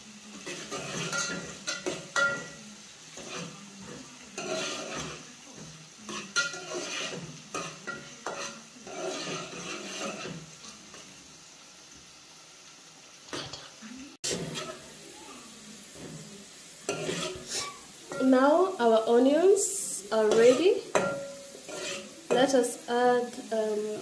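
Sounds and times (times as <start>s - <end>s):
onions sizzling in oil: 0.0s - 24.0s
metal spoon scraping a pot: 0.4s - 3.6s, 4.3s - 5.2s, 6.1s - 11.0s, 14.3s - 14.8s, 16.9s - 18.3s, 20.2s - 22.6s
spoon clinking on pot: 0.8s - 2.6s, 6.1s - 8.6s, 20.3s - 22.4s.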